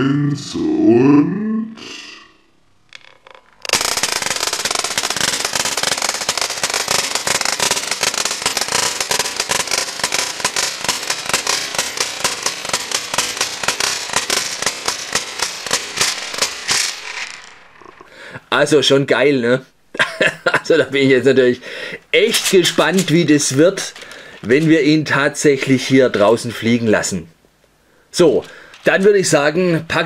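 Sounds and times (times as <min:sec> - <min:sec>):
toy wings beating with clatter: 0:02.9 - 0:18.1.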